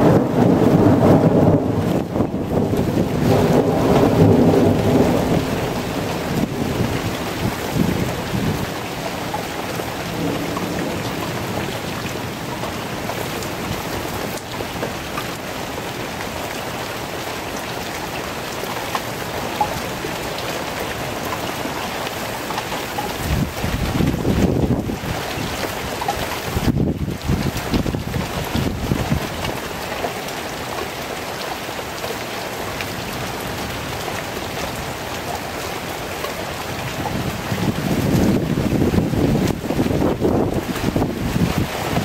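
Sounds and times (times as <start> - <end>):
low rumble of thunder: 0.0 - 8.8, 10.0 - 12.8, 23.2 - 25.6, 26.5 - 29.3, 36.8 - 42.0
steady rain falling: 0.0 - 42.0.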